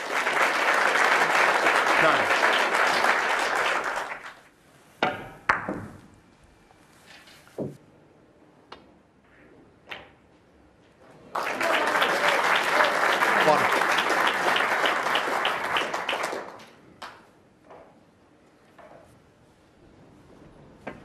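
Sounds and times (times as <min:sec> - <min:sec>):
applause: 0:00.0 - 0:04.5, 0:11.3 - 0:17.3.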